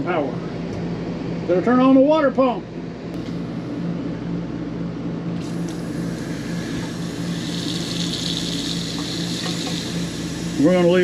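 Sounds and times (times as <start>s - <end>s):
water pump hum: 0.0s - 11.0s
water running into a steel sink: 5.5s - 11.0s.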